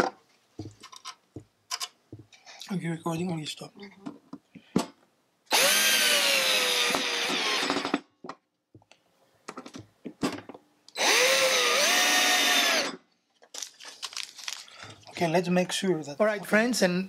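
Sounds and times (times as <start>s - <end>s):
cordless drill driving screws: 5.5s - 8.0s, 10.9s - 13.0s.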